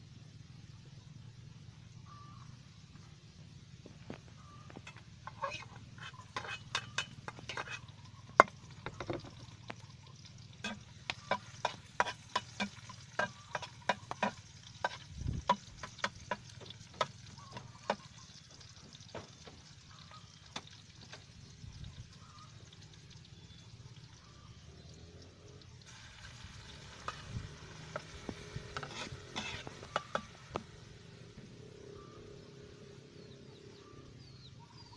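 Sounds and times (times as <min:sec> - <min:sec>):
frying sizzle: 0:03.8 - 0:32.0
metal utensil scraping a wok: 0:04.8 - 0:09.4, 0:10.6 - 0:16.8, 0:25.9 - 0:30.7.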